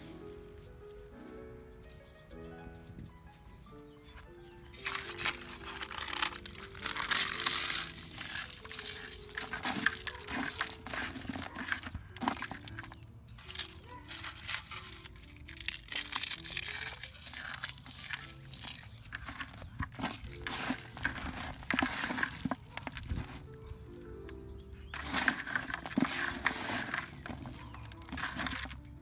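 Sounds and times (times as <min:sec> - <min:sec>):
quiet background music: 0:00.0 - 0:29.0
eggshells crunching: 0:04.1 - 0:29.0.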